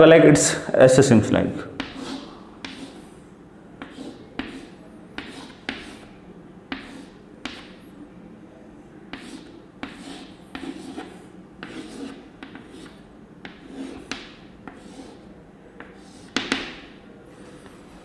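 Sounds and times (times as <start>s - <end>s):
chalk on blackboard: 1.8s - 3.2s, 3.8s - 6.1s, 6.7s - 7.9s, 9.1s - 17.5s.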